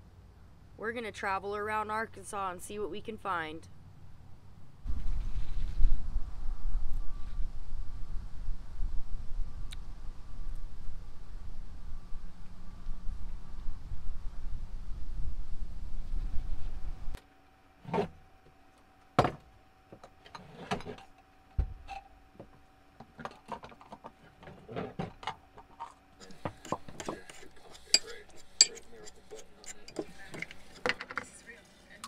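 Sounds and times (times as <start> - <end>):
faint steady hum: 0.0 - 32.0
wind rumble on microphone: 4.9 - 17.2.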